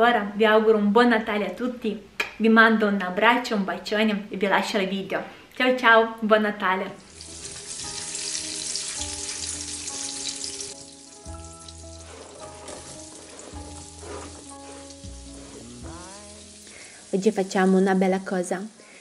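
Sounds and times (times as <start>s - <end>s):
soft background music: 6.4s - 18.7s
butter sizzling in a frying pan: 7.0s - 18.8s.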